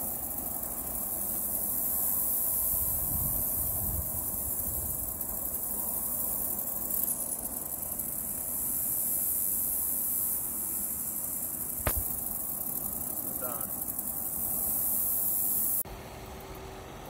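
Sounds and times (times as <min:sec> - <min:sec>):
high-pitched insect drone: 0:00.0 - 0:15.8
low wind rumble on microphone: 0:02.7 - 0:05.1.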